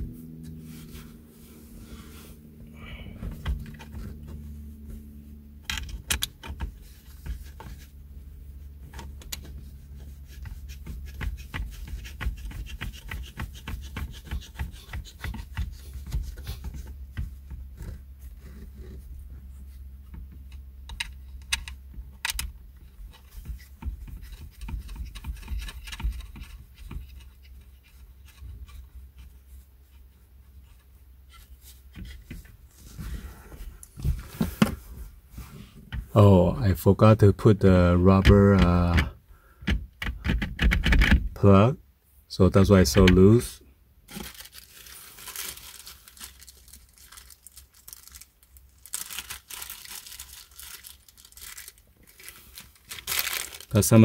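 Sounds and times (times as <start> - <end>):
hands rubbing seat fabric: 0.0 - 5.6, 6.4 - 20.4
plastic packaging crinkling: 44.1 - 54.0.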